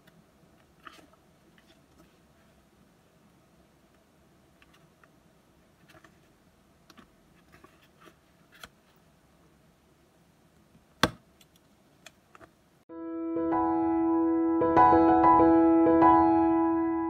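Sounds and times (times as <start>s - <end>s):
paper rustling: 7.3s - 9.0s.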